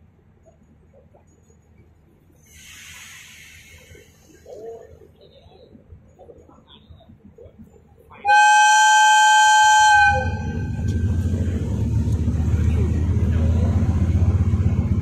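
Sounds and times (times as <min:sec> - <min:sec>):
locomotive horn blast: 0:08.2 - 0:11.3
diesel engine throbbing: 0:09.0 - 0:15.0.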